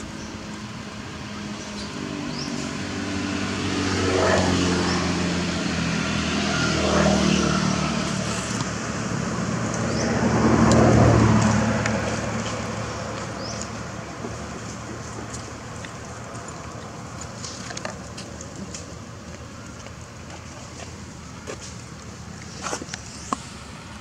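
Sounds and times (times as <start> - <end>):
traffic passing by: 0.0 - 24.0.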